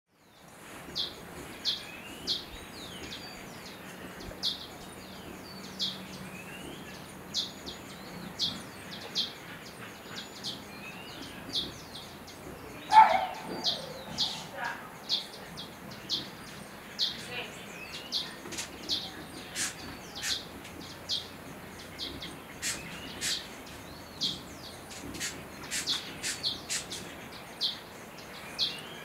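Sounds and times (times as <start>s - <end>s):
bird chirping: 0.2s - 29.0s
steady background hiss: 0.2s - 29.0s
low bird call: 12.7s - 15.4s.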